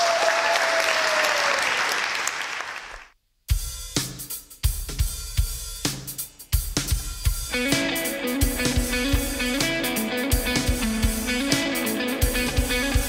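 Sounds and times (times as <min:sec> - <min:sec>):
applause: 0:00.0 - 0:03.2
live band drum kit: 0:03.5 - 0:13.0.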